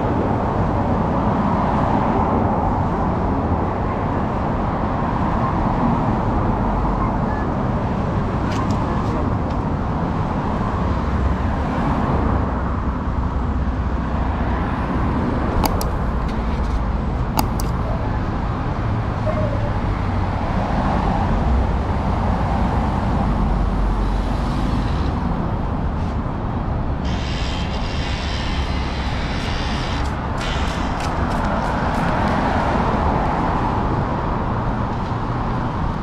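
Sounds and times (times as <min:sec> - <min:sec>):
road traffic running past: 0:00.0 - 0:36.0
sharp clicks: 0:15.6 - 0:16.4, 0:17.3 - 0:17.8.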